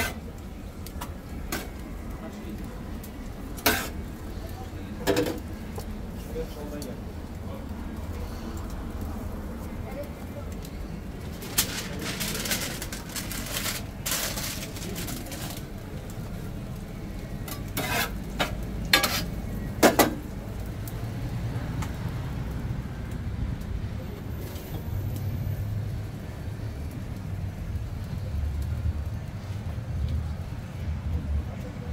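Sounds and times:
rustling and scraping: 3.6s - 4.0s, 11.2s - 15.7s, 17.5s - 19.4s.

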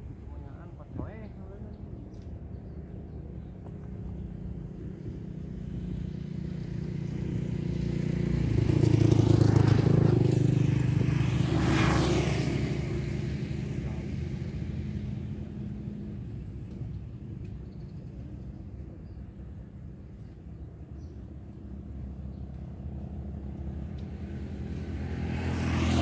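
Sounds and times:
vehicle passing by: 4.2s - 17.2s, 21.3s - 26.0s.

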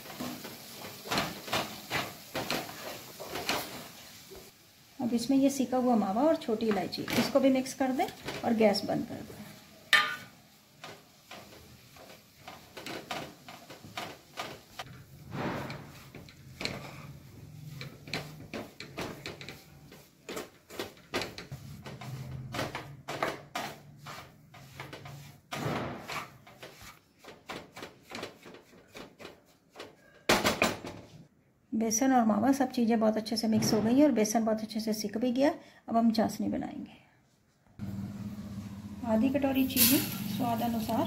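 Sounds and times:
wooden spatula scraping a pan: 0.0s - 30.3s, 38.6s - 41.0s.

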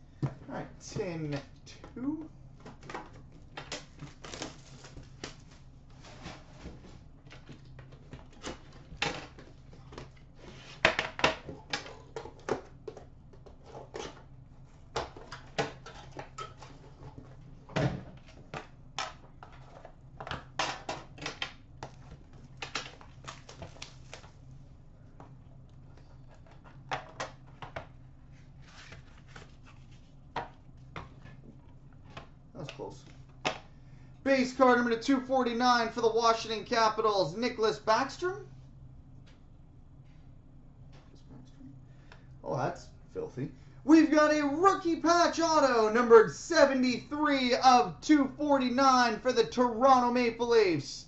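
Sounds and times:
steady low hum: 0.0s - 51.0s
shrink wrap crinkling and tearing: 3.7s - 5.7s
cards handled clicks and rustles: 18.1s - 24.4s.

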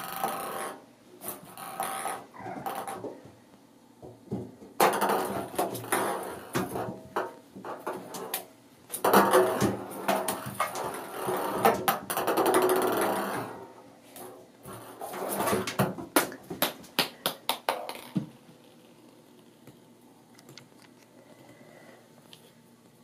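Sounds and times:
ping pong ball rolling in bathtub: 0.0s - 3.3s, 4.0s - 8.4s, 9.0s - 13.7s, 17.6s - 18.4s
ball bouncing: 15.4s - 18.4s.

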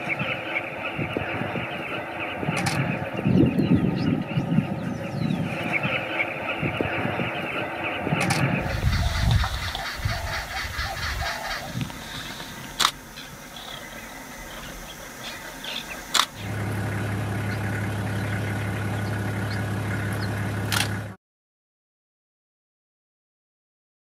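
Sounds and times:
faint bird chirps: 0.0s - 16.6s
low motor hum: 0.0s - 21.2s
sharp clicks: 2.5s - 3.0s, 11.8s - 13.0s, 16.0s - 16.4s, 20.2s - 21.0s.

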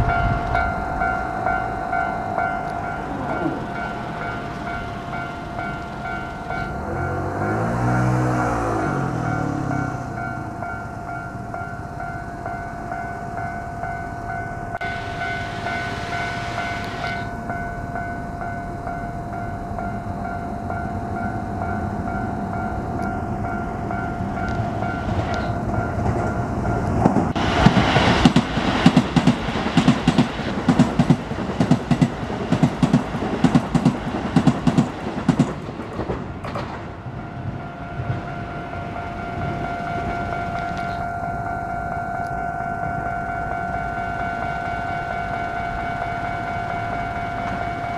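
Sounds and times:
level crossing warning bell: 0.0s - 35.7s, 36.6s - 47.9s
train wheels clattering: 21.2s - 41.1s.

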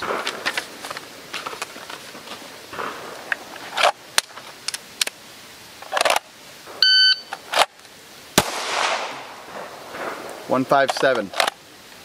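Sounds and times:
shot timer beep: 6.8s - 7.3s.

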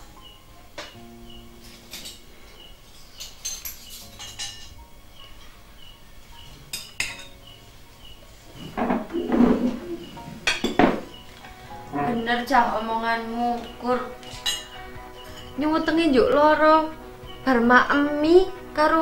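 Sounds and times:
spoons clinking on ceramic plates: 1.6s - 2.3s, 2.9s - 4.8s, 6.6s - 7.6s, 10.4s - 11.2s, 13.6s - 15.6s.

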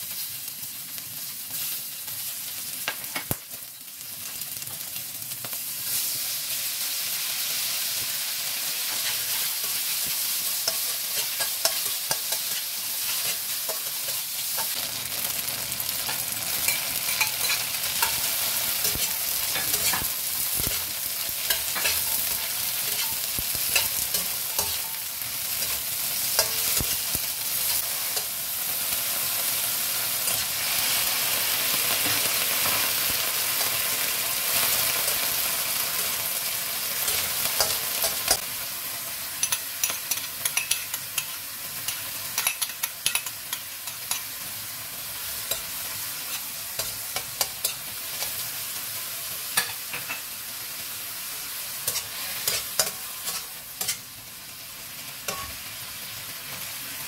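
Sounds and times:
hot oil sizzling in a wok: 0.0s - 57.0s
spatula scraping and clacking pan: 8.8s - 14.8s, 16.0s - 28.4s, 31.9s - 36.2s, 37.0s - 38.5s, 39.4s - 44.5s, 45.2s - 48.6s, 49.6s - 50.3s, 51.8s - 54.2s, 55.3s - 55.6s.

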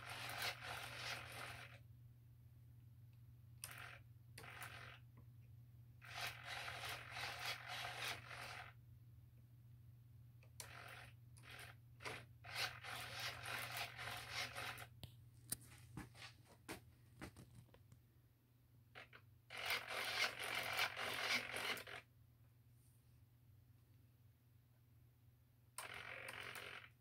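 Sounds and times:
servos whirring in short bursts: 19.5s - 22.0s.

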